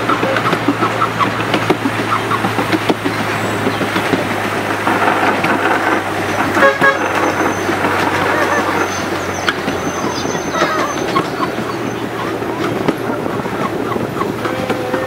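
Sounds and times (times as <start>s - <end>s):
miniature train rumbling: 0.0s - 15.0s
wheel clicks on rails: 0.0s - 15.0s
train horn toot: 4.8s - 11.1s.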